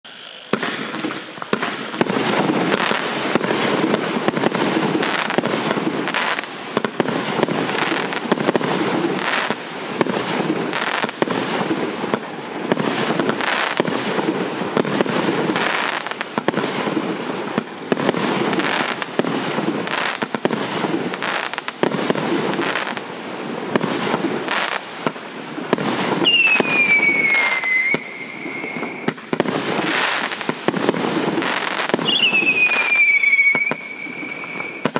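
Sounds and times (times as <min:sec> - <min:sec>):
falling firework whistle: 0:00.1 - 0:14.2, 0:23.7 - 0:34.9
fireworks crackle: 0:00.1 - 0:34.9
fireworks shots and bursts: 0:00.1 - 0:34.9.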